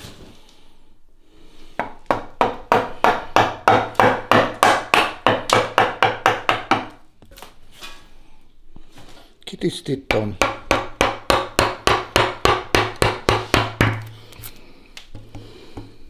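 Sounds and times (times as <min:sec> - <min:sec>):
mallet striking chisel: 0:01.8 - 0:07.0, 0:10.1 - 0:14.1.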